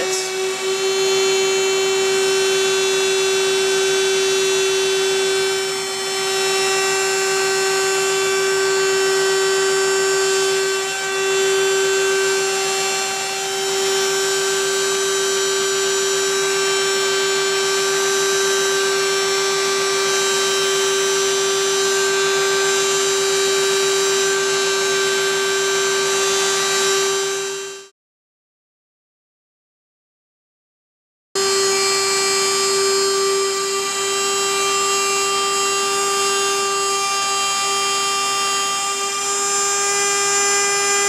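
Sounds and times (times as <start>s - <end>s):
trim routers whining: 0.0s - 27.8s.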